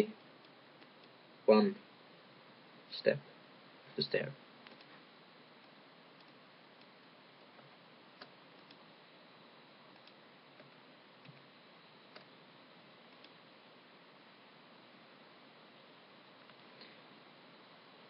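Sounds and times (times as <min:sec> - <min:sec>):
faint steady hiss: 0:00.0 - 0:18.0
computer mouse clicks: 0:04.6 - 0:05.0, 0:05.6 - 0:08.8, 0:09.9 - 0:11.5, 0:12.1 - 0:12.3, 0:13.1 - 0:13.4.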